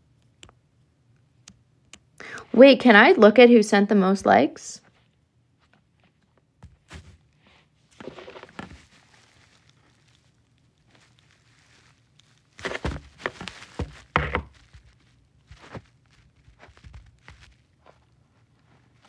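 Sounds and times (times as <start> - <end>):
handling knocks and rustling: 4.9 - 19.0.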